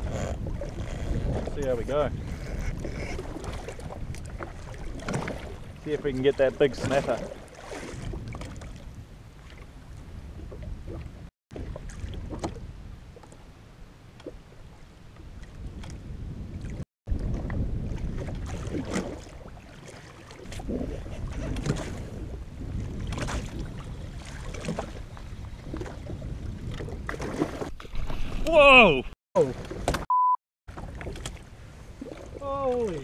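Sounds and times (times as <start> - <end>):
wind buffeting microphone: 0.0 - 13.2, 14.6 - 19.7, 20.4 - 28.5
small waves slapping a hull: 0.0 - 28.6, 29.4 - 30.0, 30.7 - 33.0.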